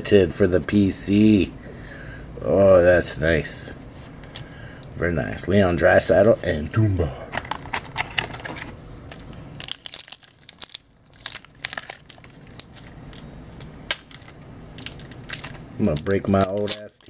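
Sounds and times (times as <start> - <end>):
foil wrapper crinkling: 9.1 - 17.0.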